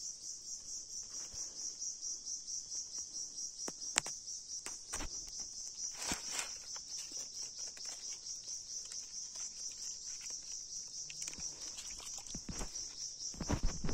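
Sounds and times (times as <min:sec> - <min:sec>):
insects chirring: 0:00.0 - 0:13.9
stones and leaves rustling: 0:03.9 - 0:13.9.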